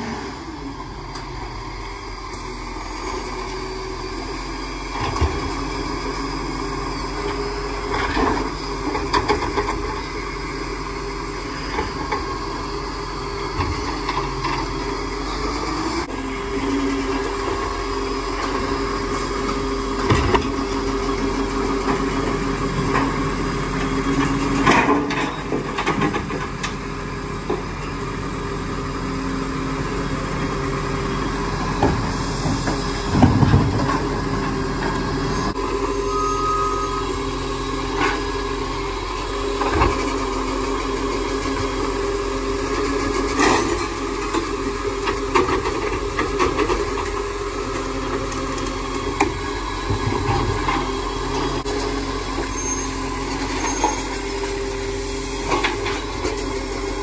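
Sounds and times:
garbage truck running: 0:00.0 - 0:57.0
clanks and bangs of bins: 0:31.8 - 0:35.0.

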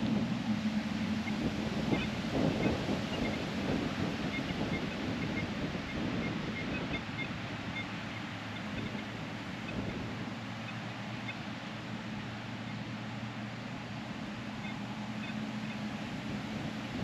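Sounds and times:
wind on microphone: 0:00.0 - 0:10.4.

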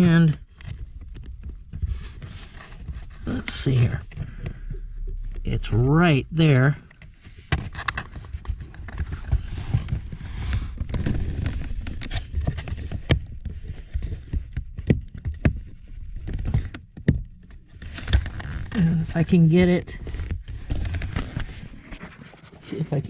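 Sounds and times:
steady low rumble: 0:02.8 - 0:07.5.

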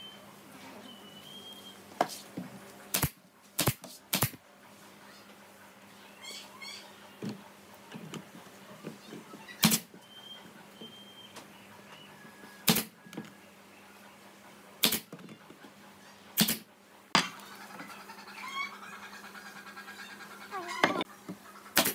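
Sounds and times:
nail gun firing: 0:02.9 - 0:04.4, 0:09.6 - 0:09.9, 0:12.6 - 0:12.9, 0:14.8 - 0:15.1, 0:16.4 - 0:16.7.

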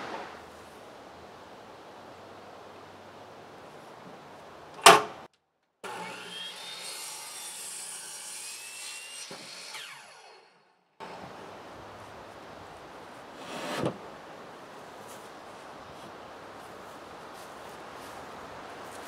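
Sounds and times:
miter saw cutting wood: 0:05.8 - 0:11.2.

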